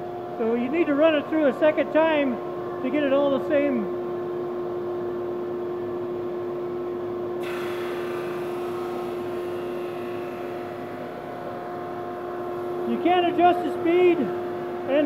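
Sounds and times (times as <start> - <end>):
drum sander humming: 7.4 - 15.0.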